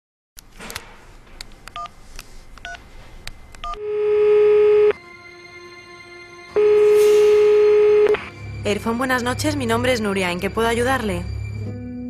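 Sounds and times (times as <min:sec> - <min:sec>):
phone ringing tone: 0:03.6 - 0:05.0, 0:05.9 - 0:08.4
quiet phone line tone: 0:03.6 - 0:05.0.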